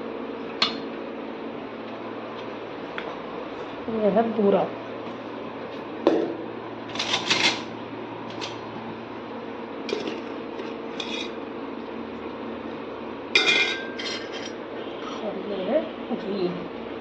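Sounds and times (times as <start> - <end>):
steel dishes clinking: 13.4 - 14.6.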